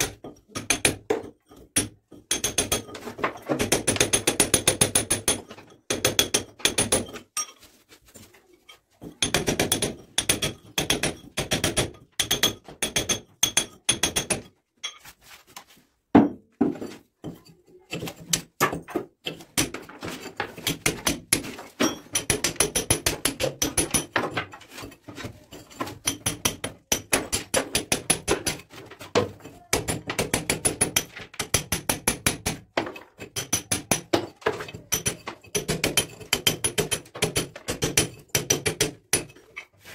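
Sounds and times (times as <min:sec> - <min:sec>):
hammer striking steel chisel: 0:00.0 - 0:03.0, 0:09.2 - 0:14.5, 0:17.9 - 0:24.4, 0:25.1 - 0:39.4.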